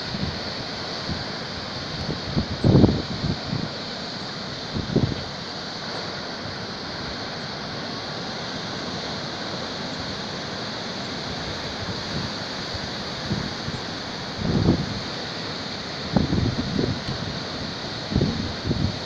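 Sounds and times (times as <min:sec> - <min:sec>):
wind gust on microphone: 0:01.9 - 0:03.8, 0:14.4 - 0:15.0, 0:16.1 - 0:17.4, 0:18.0 - 0:19.0.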